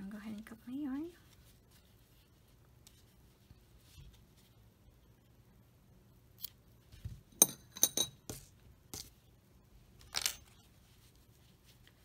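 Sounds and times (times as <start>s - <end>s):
yarn rustling: 0.7s - 4.9s.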